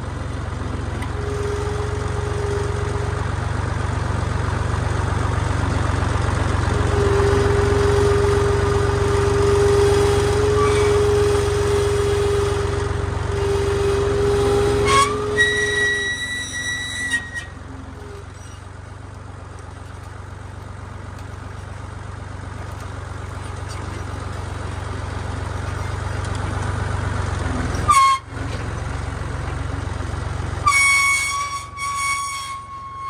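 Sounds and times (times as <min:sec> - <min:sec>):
tractor diesel engine running: 0:00.0 - 0:33.0
high-pitched horn-like tone: 0:01.0 - 0:03.2, 0:06.9 - 0:18.5, 0:27.9 - 0:28.3, 0:30.6 - 0:33.0.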